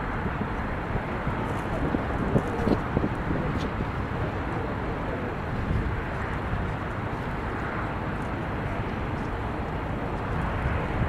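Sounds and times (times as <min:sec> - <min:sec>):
low rumble and hiss: 0:00.0 - 0:11.0.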